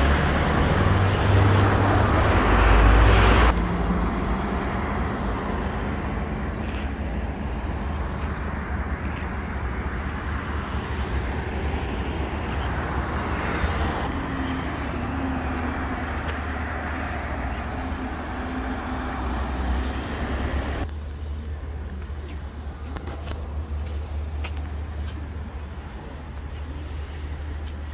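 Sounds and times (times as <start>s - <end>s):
vehicle rumble: 0.0s - 27.9s.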